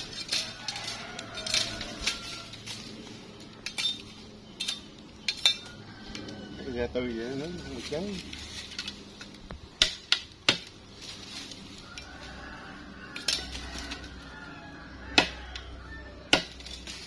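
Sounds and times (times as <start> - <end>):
machete chopping bamboo: 9.7 - 11.2, 15.1 - 15.7, 16.3 - 17.0.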